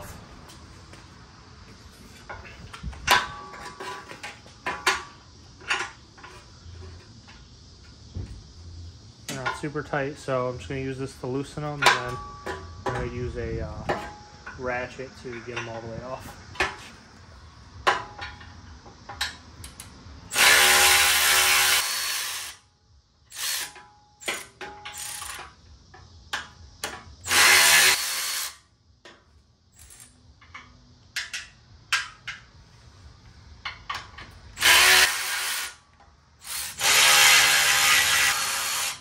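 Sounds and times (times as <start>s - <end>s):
electric ratchet spinning: 20.3s - 22.6s, 23.3s - 25.4s, 27.2s - 28.6s, 34.6s - 35.8s, 36.4s - 39.0s.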